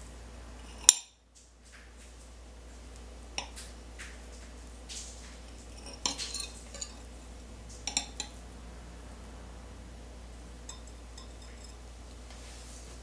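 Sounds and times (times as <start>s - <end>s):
knife clinking on ceramic plate: 5.7s - 7.1s, 7.9s - 8.4s, 10.7s - 11.8s.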